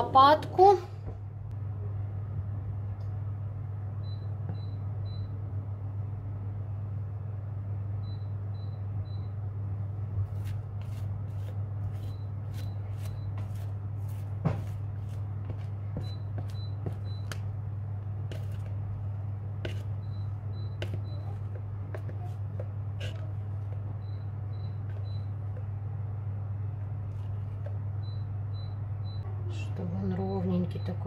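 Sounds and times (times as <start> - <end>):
low electrical hum: 0.0 - 31.0
appliance beeps: 3.9 - 5.4, 7.9 - 9.6, 12.0 - 13.6, 16.0 - 17.5, 19.8 - 21.6, 23.9 - 25.6, 27.9 - 29.3, 30.4 - 31.0.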